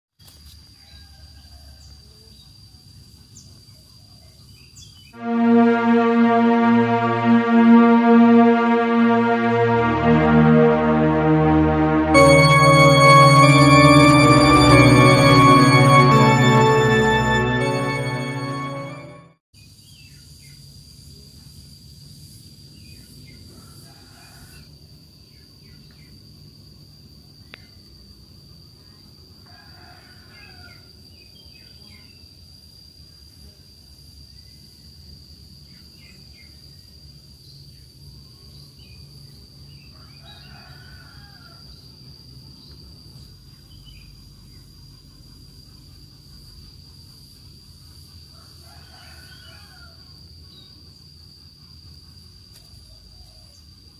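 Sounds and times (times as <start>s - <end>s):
roosters crowing in the distance: 40.0s - 41.7s, 48.3s - 50.1s.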